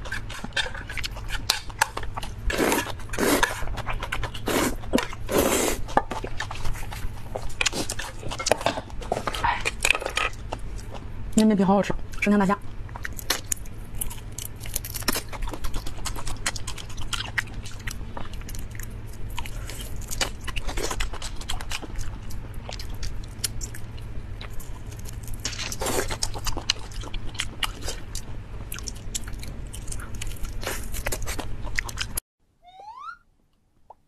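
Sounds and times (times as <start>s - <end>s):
chewing and shell crackling: 0.0s - 32.2s.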